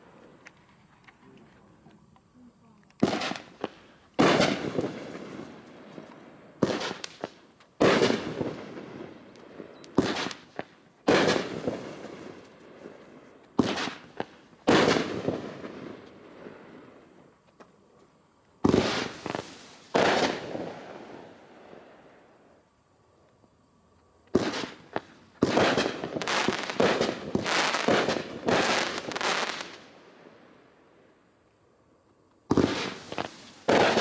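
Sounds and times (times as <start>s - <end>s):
firework bangs with echo: 3.0s - 5.4s, 6.6s - 8.8s, 10.0s - 12.2s, 13.6s - 15.7s, 24.4s - 29.6s, 32.5s - 34.0s.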